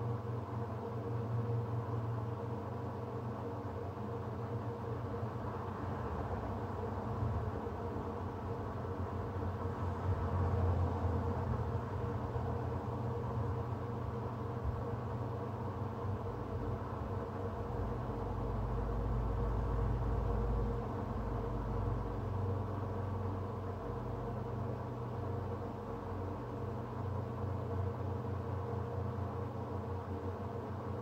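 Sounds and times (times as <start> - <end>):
low background noise: 0.0 - 31.0
steady mechanical hum: 0.0 - 31.0.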